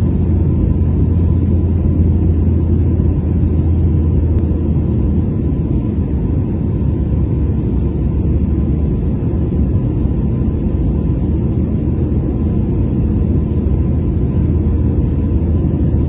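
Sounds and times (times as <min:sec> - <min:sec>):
faint steady whine: 0:00.0 - 0:16.0
jet engine rumble in cabin: 0:00.0 - 0:16.0.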